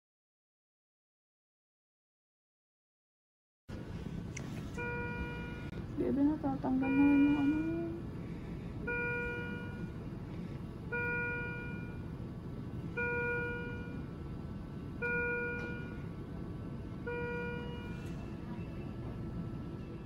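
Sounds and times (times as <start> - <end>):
low hum of machines: 3.7 - 20.0
electronic alarm beeping: 4.8 - 5.7, 6.6 - 8.0, 8.8 - 10.0, 10.9 - 12.2, 12.9 - 14.2, 14.9 - 16.2, 17.0 - 20.0.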